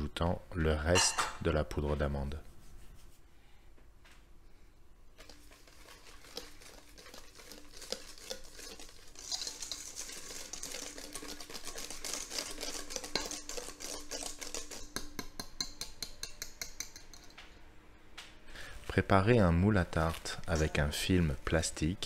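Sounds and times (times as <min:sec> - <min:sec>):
whisk beating batter in metal bowl: 0:05.1 - 0:17.3.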